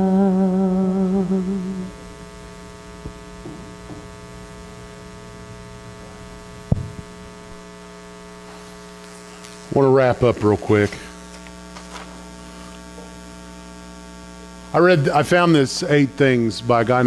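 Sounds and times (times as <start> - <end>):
electrical mains hum: 0.0 - 17.0
sharp thump: 6.7 - 7.1.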